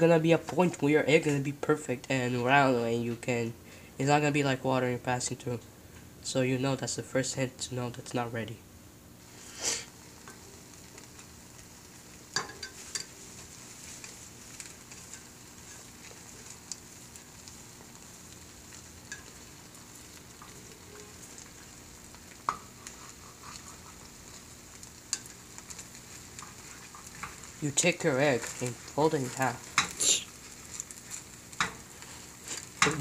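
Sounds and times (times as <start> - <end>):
egg sizzling in a frying pan: 9.1 - 33.0
spatula scraping and tapping pan: 10.2 - 33.0.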